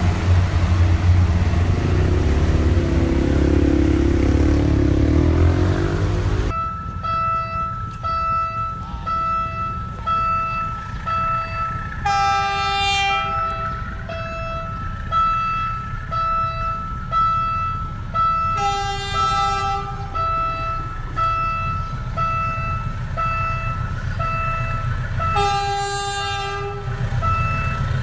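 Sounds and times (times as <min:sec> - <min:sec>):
deep engine drone: 0:00.0 - 0:06.6
train rumbling along track: 0:00.0 - 0:28.0
train horn: 0:12.0 - 0:14.8, 0:18.5 - 0:20.9, 0:25.2 - 0:27.7.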